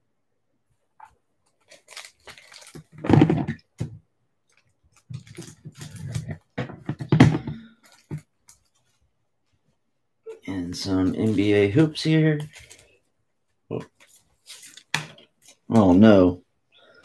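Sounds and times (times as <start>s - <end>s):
plastic pack crinkling: 1.5s - 3.6s, 4.4s - 6.5s, 7.6s - 8.8s, 10.8s - 13.0s, 13.9s - 16.2s.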